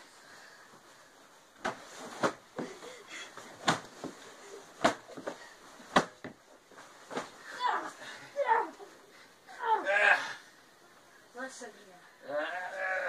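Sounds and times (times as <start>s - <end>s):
bedding rustling: 0.1s - 9.6s.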